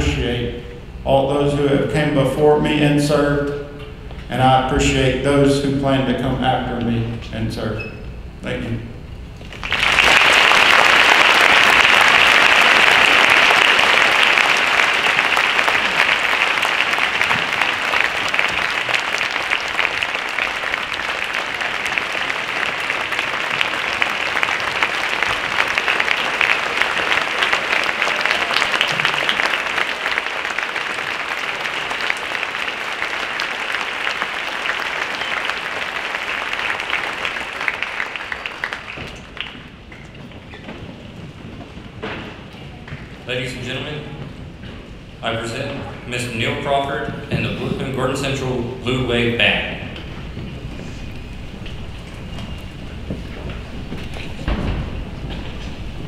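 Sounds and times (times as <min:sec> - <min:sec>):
audience applause: 0:09.4 - 0:40.7.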